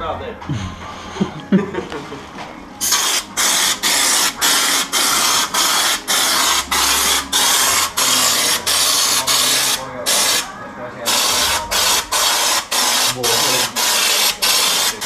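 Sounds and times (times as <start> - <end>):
spray gun hissing in bursts: 2.8 - 10.5, 11.1 - 15.0.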